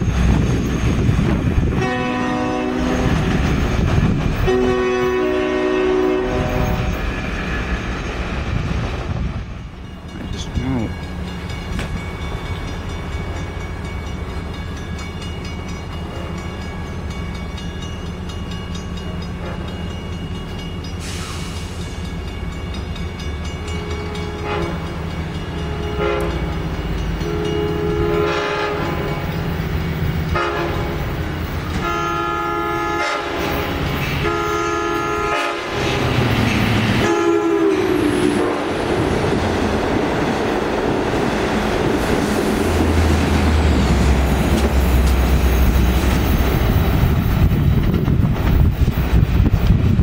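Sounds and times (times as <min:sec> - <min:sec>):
diesel train rumbling: 0:00.0 - 0:50.0
train air horn blasts: 0:01.7 - 0:03.3, 0:04.4 - 0:07.0, 0:23.8 - 0:25.0, 0:25.6 - 0:26.6, 0:27.2 - 0:29.2, 0:30.3 - 0:31.0, 0:31.8 - 0:35.8, 0:37.0 - 0:38.7.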